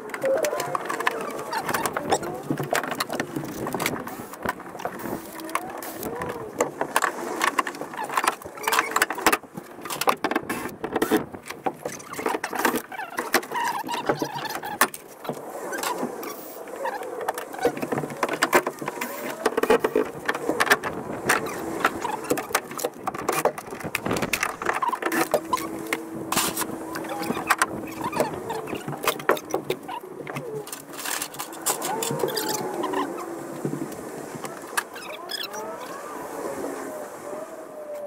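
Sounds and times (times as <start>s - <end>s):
short squeaks: 24.2s - 33.4s, 34.7s - 36.0s.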